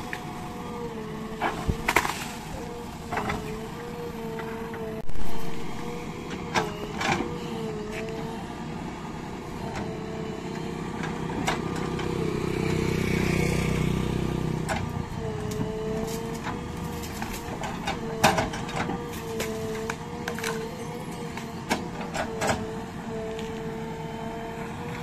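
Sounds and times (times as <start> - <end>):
diesel engine and hydraulics whine: 0.0 - 25.0.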